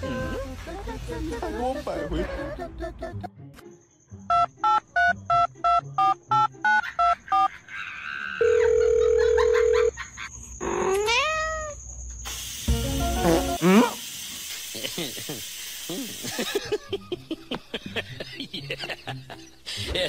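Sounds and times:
steady phone tone: 8.4 - 9.9
kitten meowing: 10.9 - 11.8.

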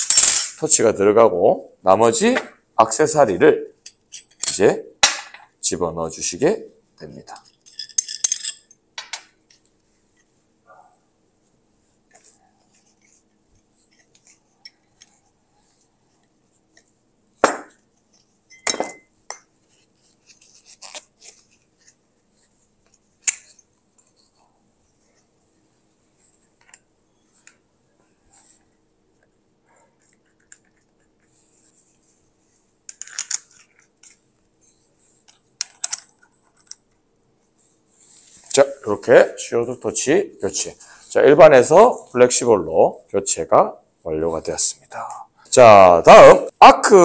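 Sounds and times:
small metal parts clicking: 35.3 - 37.0.

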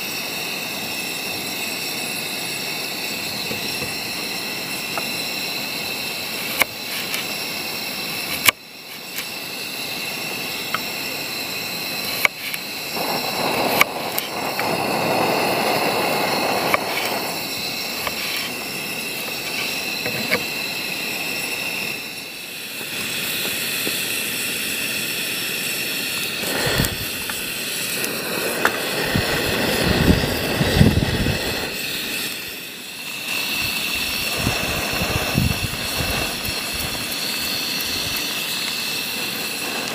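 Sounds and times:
steady rushing noise: 11.7 - 22.7, 25.9 - 39.9.

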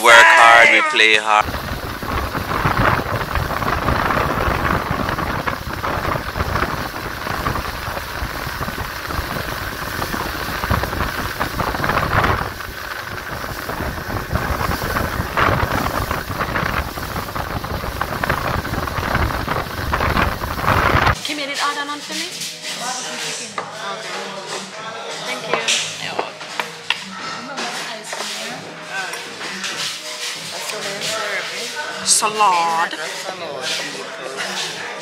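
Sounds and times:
churning wake water: 1.4 - 21.2
wind buffeting microphone: 1.4 - 21.2.

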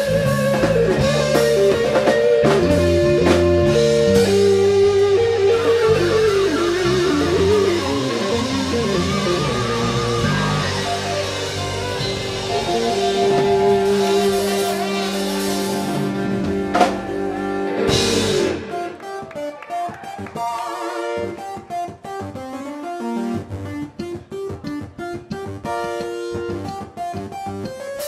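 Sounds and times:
live rock band playing: 0.0 - 28.0.

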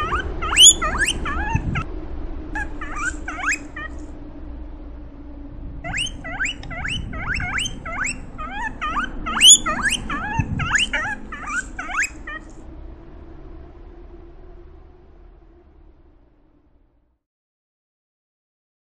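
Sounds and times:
guinea pig wheeking: 0.0 - 1.9, 2.6 - 4.1, 5.8 - 12.6.

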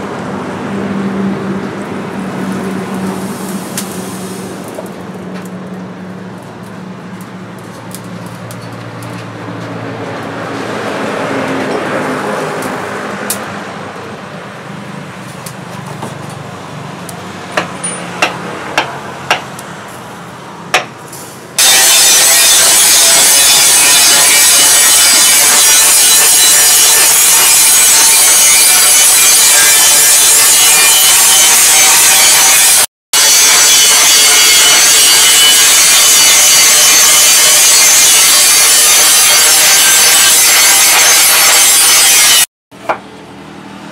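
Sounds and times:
loud steady rasping noise: 21.6 - 42.5.

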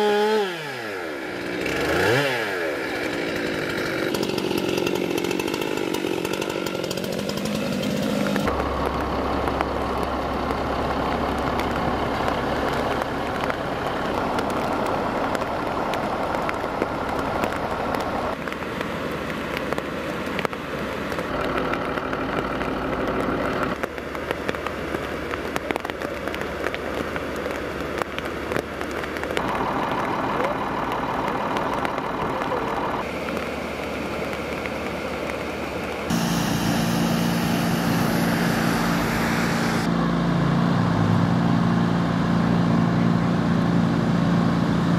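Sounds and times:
floodwater rushing: 0.8 - 39.9
fire engine pump humming: 2.8 - 19.2, 28.9 - 44.9
rain: 8.2 - 39.9.

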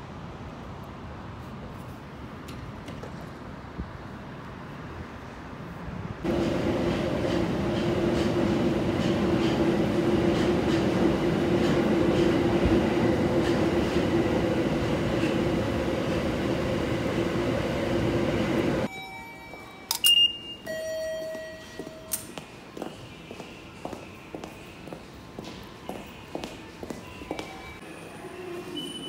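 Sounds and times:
subway car rumbling: 0.0 - 29.0
station ambience: 6.2 - 29.0
short electronic beep: 18.9 - 22.2.

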